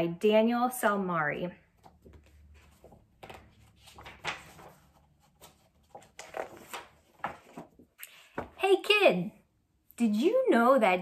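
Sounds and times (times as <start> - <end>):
book pages turning: 1.8 - 8.6.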